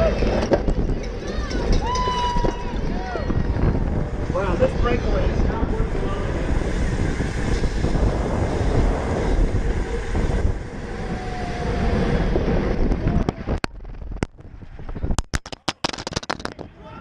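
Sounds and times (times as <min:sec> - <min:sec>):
wind rushing over camera: 0:00.0 - 0:17.0
camera hitting road: 0:12.8 - 0:16.8.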